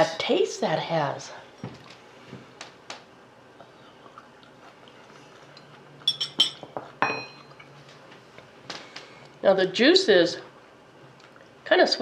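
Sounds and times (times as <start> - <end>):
fork clinking on glass and plate: 6.0 - 7.7.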